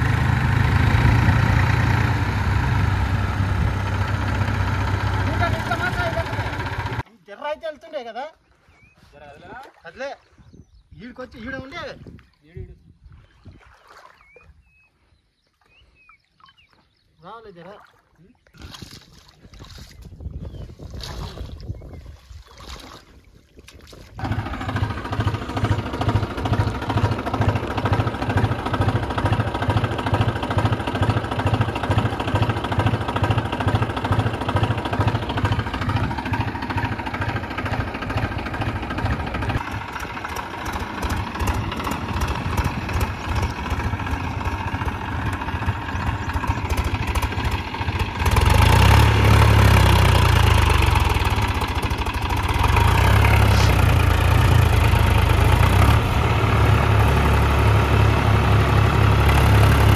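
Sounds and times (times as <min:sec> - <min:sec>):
diesel tractor engine running: 0:00.0 - 0:07.0, 0:24.2 - 0:59.9.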